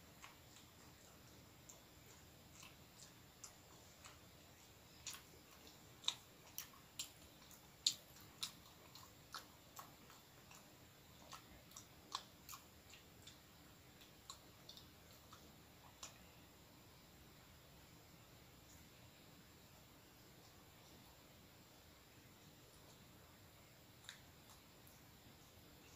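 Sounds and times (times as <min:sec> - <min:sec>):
mouth chewing wetly: 0:00.0 - 0:16.7, 0:22.4 - 0:25.9.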